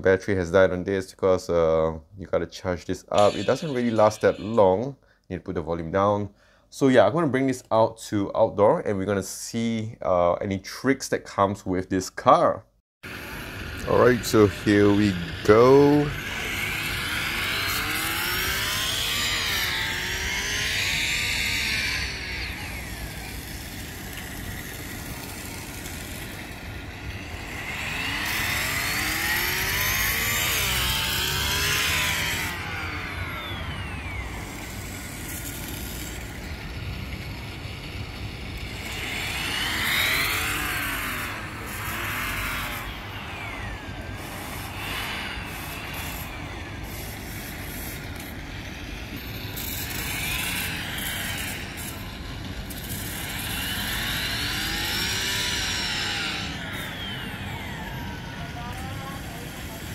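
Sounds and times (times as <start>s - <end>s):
simulated race car engine revving: 13.2s - 26.4s, 27.0s - 35.2s, 38.5s - 46.8s, 52.8s - 58.9s.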